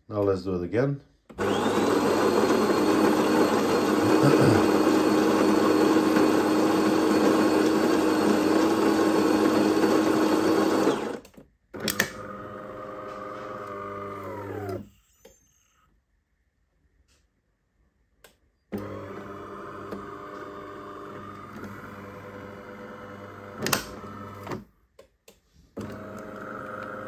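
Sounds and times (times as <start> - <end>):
burr grinder grinding coffee beans: 1.3 - 14.9, 18.8 - 24.7, 25.8 - 27.0.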